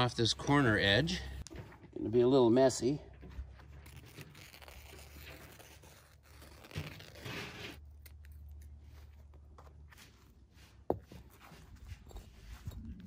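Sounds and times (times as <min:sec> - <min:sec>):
fabric tearing and crinkling: 0:03.7 - 0:08.3.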